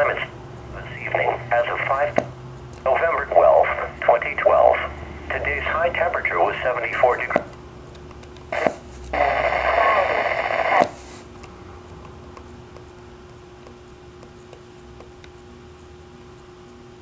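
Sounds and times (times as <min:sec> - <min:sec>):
radio speaker hiss burst: 0:00.0 - 0:02.2, 0:08.5 - 0:11.3
faint steady hum: 0:00.0 - 0:17.0.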